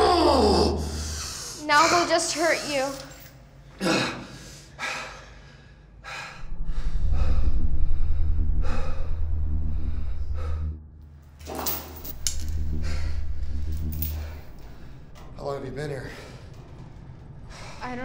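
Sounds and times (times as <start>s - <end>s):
deep low hum: 0.0s - 1.4s, 6.3s - 18.0s.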